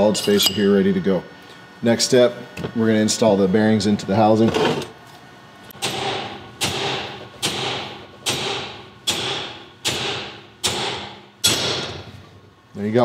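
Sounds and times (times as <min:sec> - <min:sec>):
hammer striking metal punch: 0:00.0 - 0:00.9, 0:05.8 - 0:12.0.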